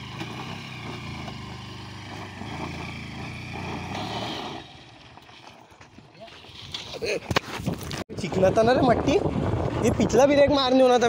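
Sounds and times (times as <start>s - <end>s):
motorcycle engine revving: 0.0s - 6.9s
wheel scrabbling on dirt: 0.0s - 8.0s.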